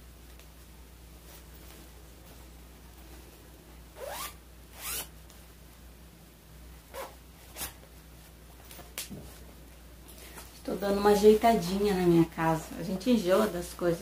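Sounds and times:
zipper being pulled: 4.0 - 5.1, 6.9 - 7.8.

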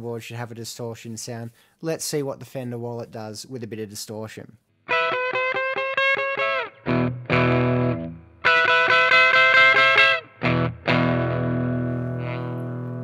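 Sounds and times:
distorted electric guitar chords: 4.9 - 13.0.

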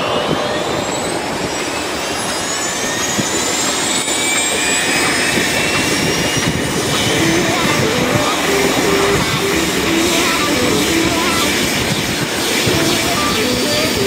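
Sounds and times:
helicopter engine and rotor noise: 0.0 - 14.0
high turbine whine: 0.0 - 14.0.

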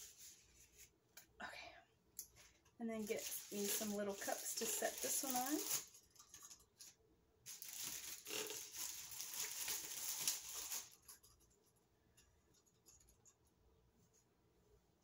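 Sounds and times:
plastic cups crinkling: 2.9 - 11.3.

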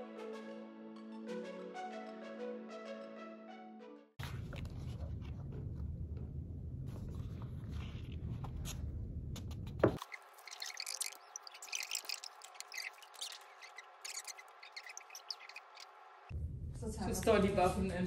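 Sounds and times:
paper rustling: 4.2 - 5.8, 6.9 - 8.9
low rumble: 4.2 - 9.8, 16.3 - 18.0.

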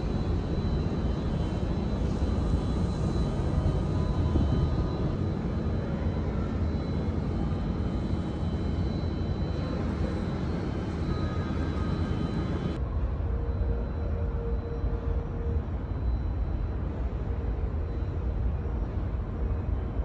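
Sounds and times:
wind on microphone: 0.0 - 5.2
faint steady tones: 0.0 - 20.0.

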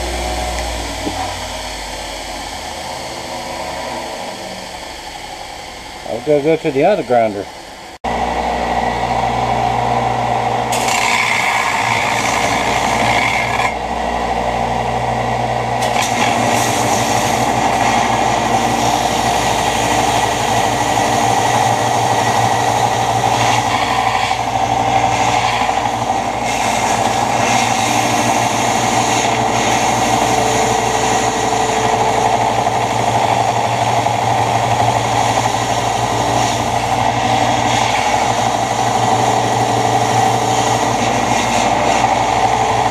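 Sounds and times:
belt grinder motor hum: 0.0 - 7.4, 8.1 - 42.9
steel grinding hiss: 15.8 - 42.9.

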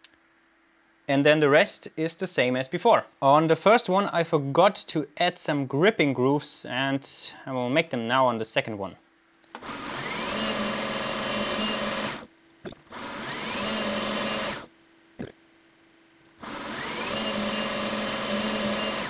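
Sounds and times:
metal lathe motor whining: 9.6 - 12.3, 12.9 - 14.7, 16.4 - 19.0.

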